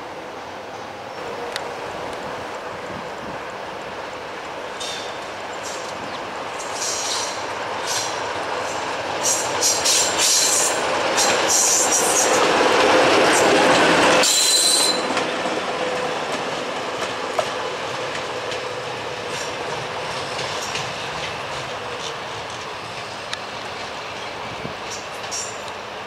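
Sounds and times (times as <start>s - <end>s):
wheels squealing: 13.2s - 15.3s.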